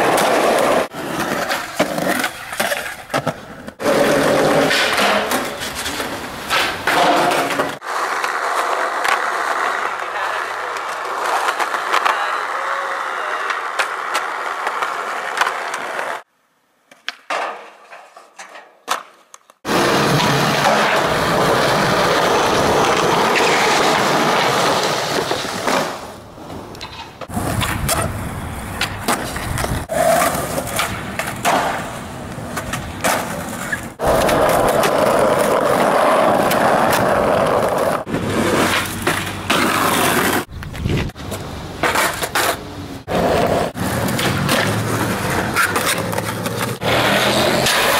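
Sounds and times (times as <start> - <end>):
skateboard clacks: 0.0 - 16.2, 26.6 - 47.9
skateboard rolling over concrete: 0.0 - 16.3, 16.9 - 47.9
skateboard trucks grinding: 0.0 - 16.3, 17.0 - 47.9.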